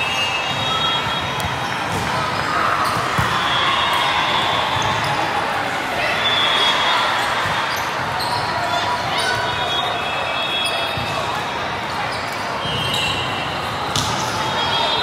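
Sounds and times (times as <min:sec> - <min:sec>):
echoing hubbub of voices: 0:00.0 - 0:15.0
volleyballs hit and bouncing: 0:00.3 - 0:03.6, 0:13.8 - 0:14.6.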